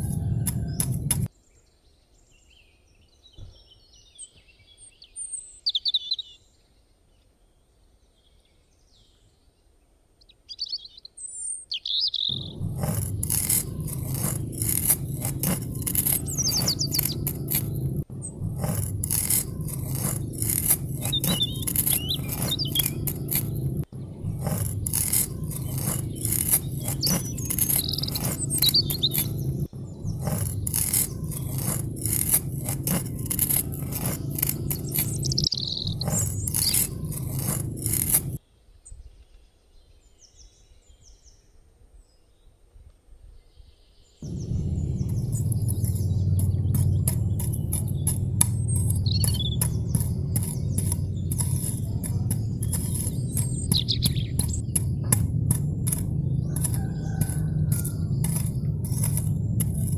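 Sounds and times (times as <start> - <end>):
metal tool scratching soil: 0.0 - 1.3, 12.2 - 38.4, 44.2 - 59.9
small birds chirping: 0.0 - 41.4, 43.5 - 59.9.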